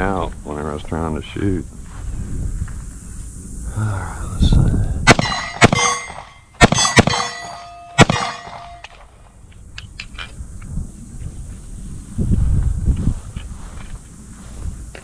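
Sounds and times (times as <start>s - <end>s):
pistol shots: 5.1s - 9.0s
steel target clanging: 5.1s - 9.0s.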